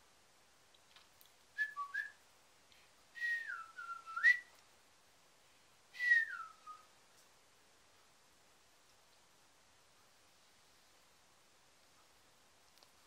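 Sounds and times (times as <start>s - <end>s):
person whistling: 3.2s - 4.5s, 6.0s - 6.8s.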